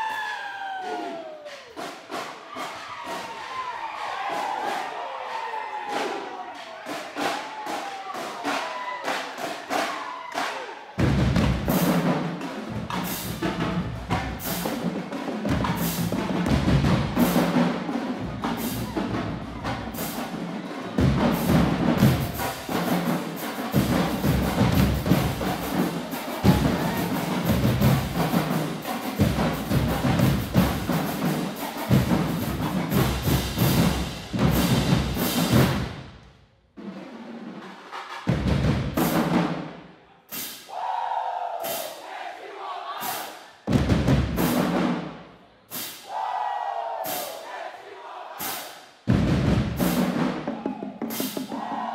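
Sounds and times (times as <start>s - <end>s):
marching band playing: 5.9s - 39.8s, 43.7s - 45.2s, 49.1s - 51.9s
drum stick and rim strokes: 48.4s - 48.8s.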